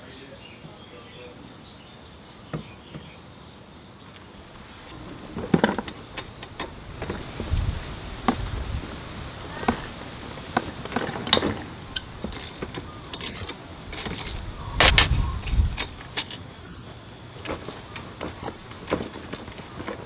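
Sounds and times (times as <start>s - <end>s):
metal tools clinking: 11.0s - 16.4s.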